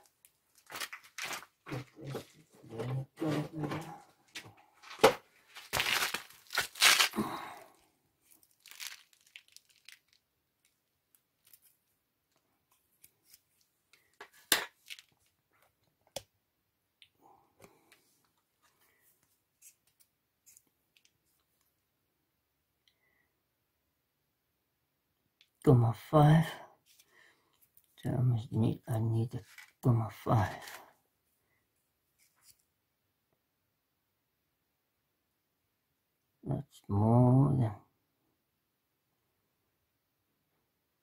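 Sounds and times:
hands handling metal parts: 13.0 - 15.2.

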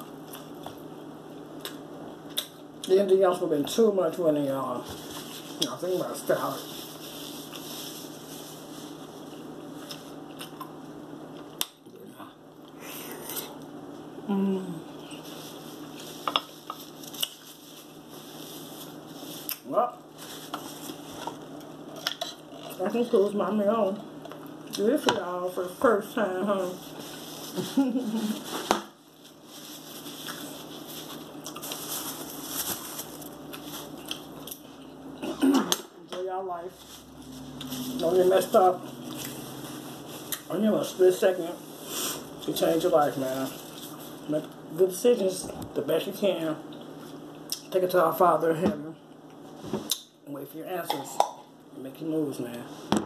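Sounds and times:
eating and handling noises: 0.0 - 48.0
low room hum: 0.0 - 53.0
paper napkins crinkling: 4.8 - 10.2, 15.1 - 21.5, 26.6 - 34.5, 36.7 - 44.3
person humming: 14.2 - 14.9.

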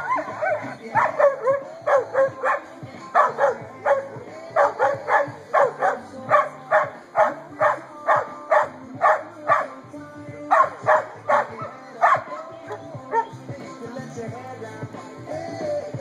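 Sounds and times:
dog barking: 0.0 - 9.8, 10.5 - 13.4.

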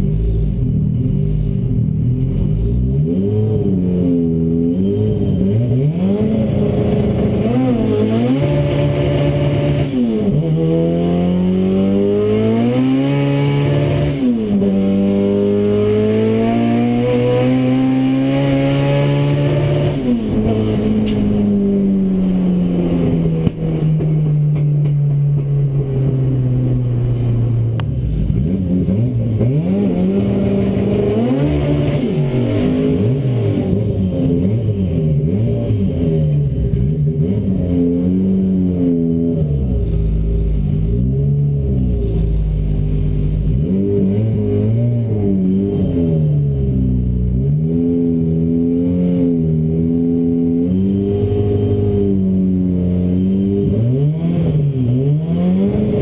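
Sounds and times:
race car engine revving: 0.0 - 56.0.

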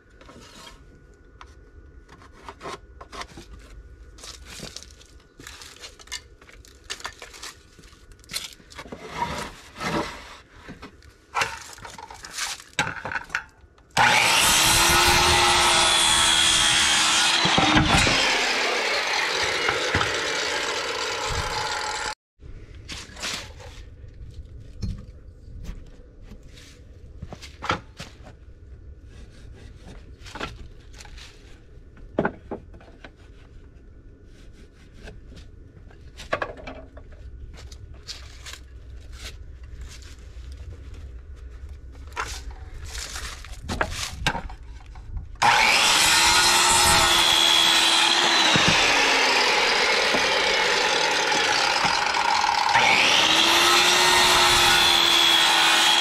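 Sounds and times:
clicks and knocks of handling gear: 1.4 - 10.0
circular saw cutting wood: 14.0 - 22.2, 45.4 - 56.0.

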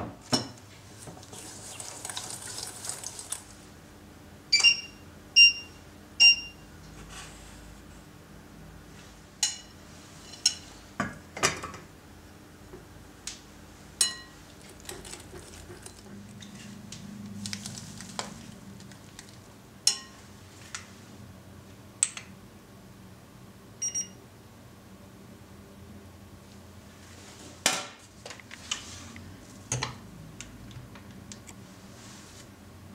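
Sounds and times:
soft whisking: 0.7 - 3.8
whisk clinking on glass bowl: 14.0 - 14.4, 19.9 - 20.2
short electronic beeps: 23.8 - 24.2.

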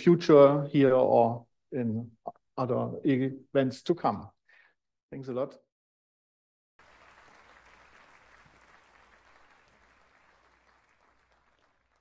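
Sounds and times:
faint audience applause: 6.8 - 12.0.

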